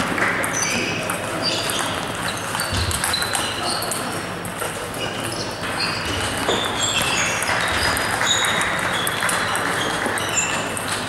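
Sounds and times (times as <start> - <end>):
ping-pong balls clicking: 0.0 - 11.0.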